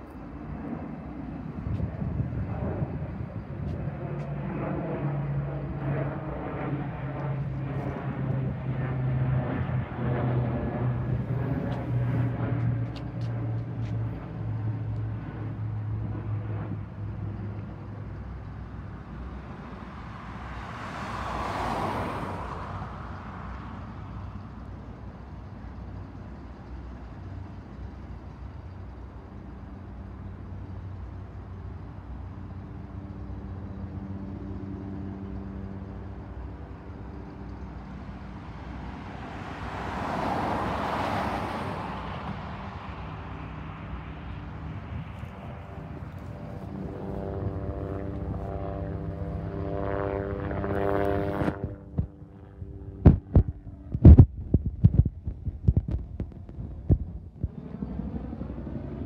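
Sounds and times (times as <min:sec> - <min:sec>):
road vehicles passing: 0:00.0 - 0:59.0.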